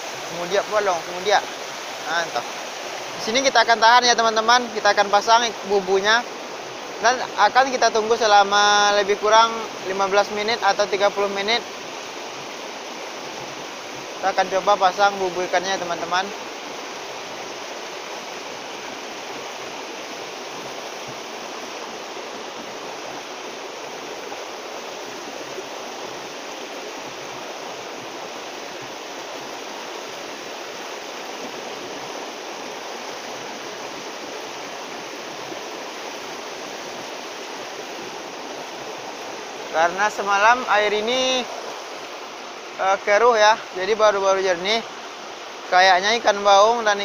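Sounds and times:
small river running: 0.0s - 47.0s.

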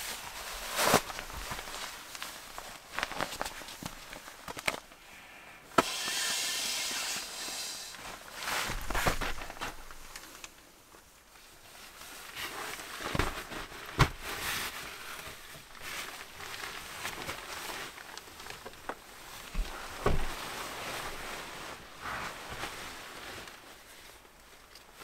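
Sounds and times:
fabric rustling: 7.9s - 25.0s.

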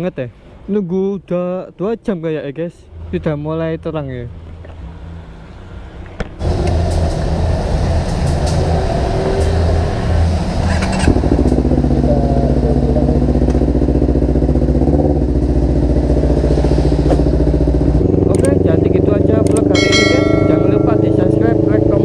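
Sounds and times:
motorcycle engine running: 10.7s - 22.0s.

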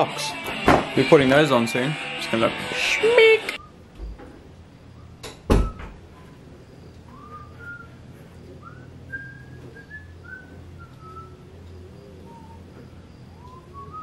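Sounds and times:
sharp knocks: 0.5s - 1.0s
faint whistling: 3.6s - 3.9s, 4.7s - 14.0s.

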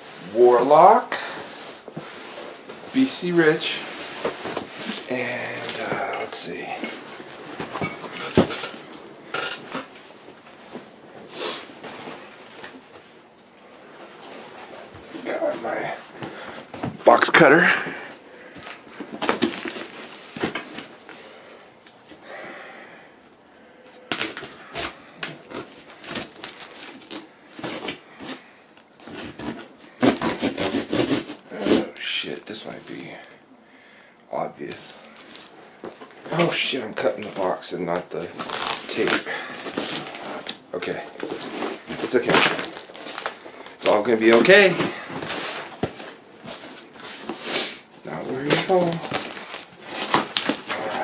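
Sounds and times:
plastic wrap crinkling: 2.7s - 9.0s, 18.4s - 21.2s, 24.1s - 33.4s, 34.6s - 47.4s, 48.0s - 51.0s
cardboard box rubbing: 29.1s - 31.9s.

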